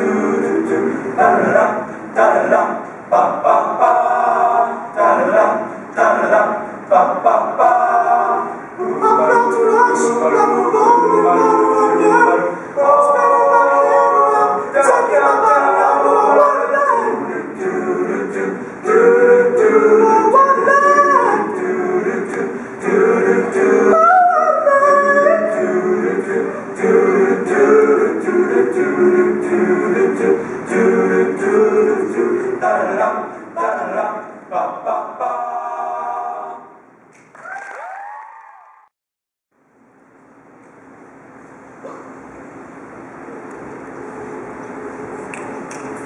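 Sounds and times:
male a cappella group singing: 0.0s - 36.8s.

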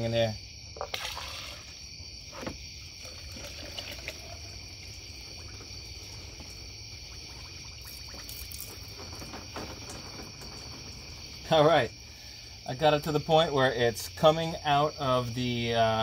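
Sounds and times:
high insect trill: 0.0s - 16.0s
liquid pouring through a funnel: 0.8s - 11.6s.

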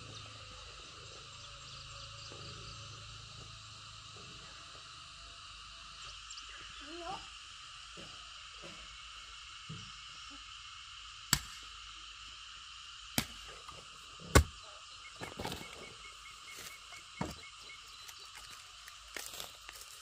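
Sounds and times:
frogs and insects chorus: 0.0s - 20.0s
sharp knocks: 14.3s - 14.5s.

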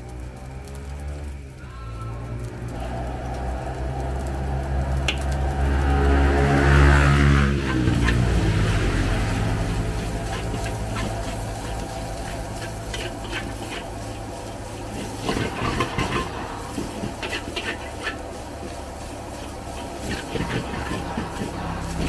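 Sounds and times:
low hum: 0.0s - 22.0s
metal spatula scraping a wok: 6.6s - 22.0s.

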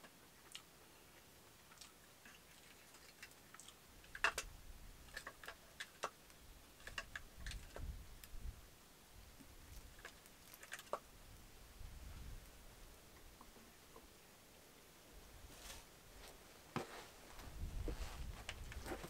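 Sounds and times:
bamboo tube clicks and taps: 4.1s - 4.5s.

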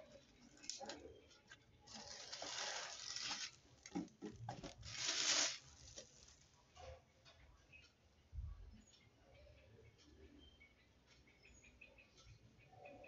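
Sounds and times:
plastic bag crinkling: 1.9s - 6.5s.

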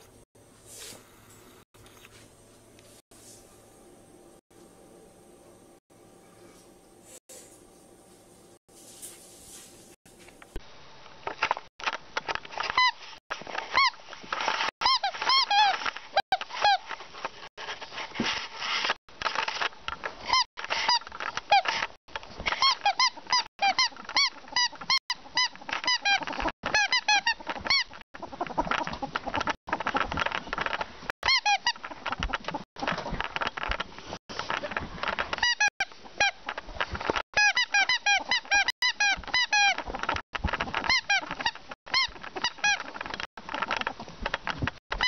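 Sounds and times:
ferret squeaks: 14.8s - 16.8s, 22.5s - 29.5s, 31.2s - 32.0s, 37.4s - 39.8s, 40.8s - 43.0s.

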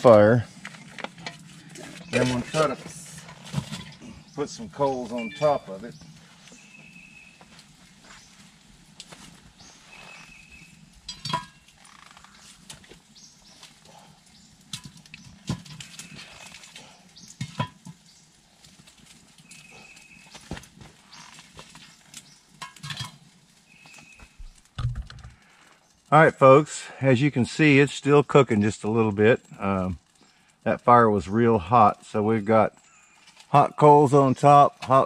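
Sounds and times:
metal clanks and scrapes: 0.6s - 4.2s, 11.0s - 12.0s, 14.7s - 16.8s, 17.4s - 18.0s, 22.6s - 23.3s.

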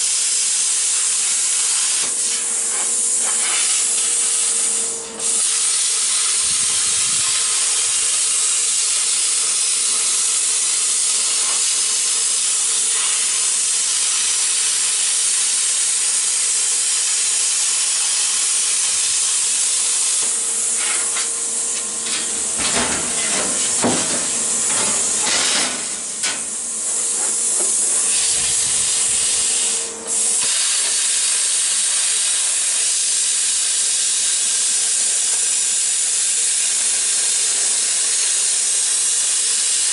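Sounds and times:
plasma cutter hissing: 0.0s - 39.9s
crackling of metal cutting: 1.5s - 17.3s, 17.9s - 31.2s.

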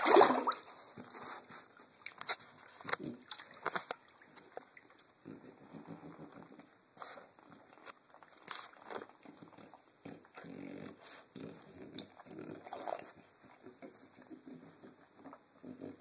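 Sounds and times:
dog snorting and snuffling: 5.2s - 7.8s, 8.5s - 16.0s.

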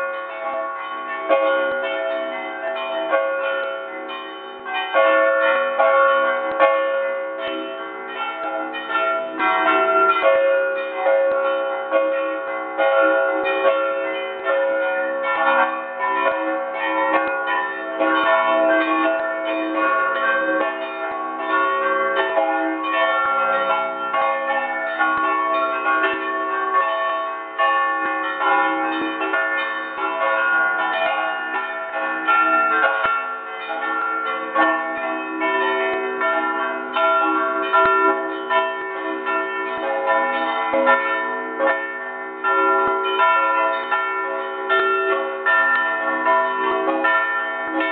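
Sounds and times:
church bells ringing: 0.0s - 47.9s.

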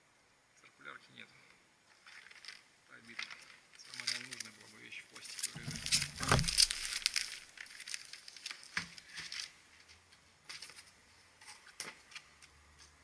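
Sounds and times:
bubble wrap crinkling: 2.0s - 9.9s.

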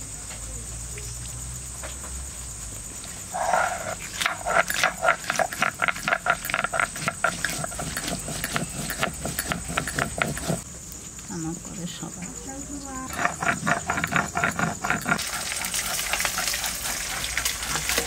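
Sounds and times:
stone grinding on stone: 3.3s - 10.6s, 13.1s - 18.0s.

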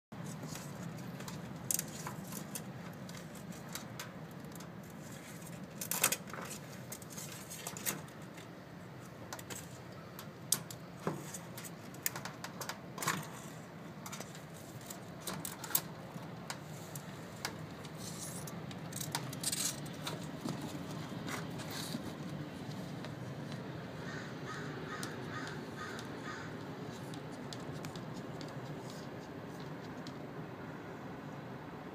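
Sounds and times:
steady low hum: 0.2s - 31.9s
shell and claws scraping on door: 16.6s - 22.2s.

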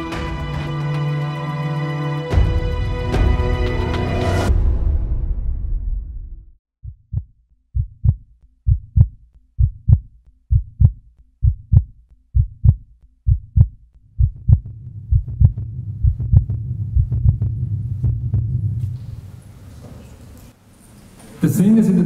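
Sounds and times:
heartbeat thumps: 6.8s - 19.2s
low drone: 14.2s - 19.8s.

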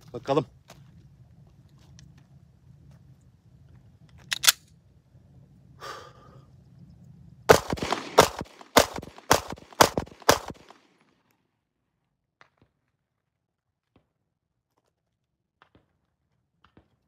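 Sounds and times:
pistol handling clicks: 4.2s - 4.7s
pistol shots: 7.5s - 10.8s.

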